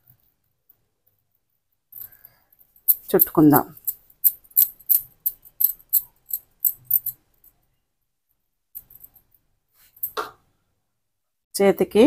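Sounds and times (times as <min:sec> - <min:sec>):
bangles clinking: 0:00.0 - 0:07.8, 0:08.8 - 0:10.2.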